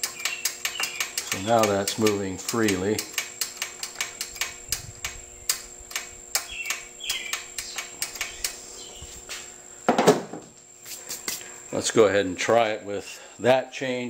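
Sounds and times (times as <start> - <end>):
mower throttle linkage clicking: 0.0 - 8.7.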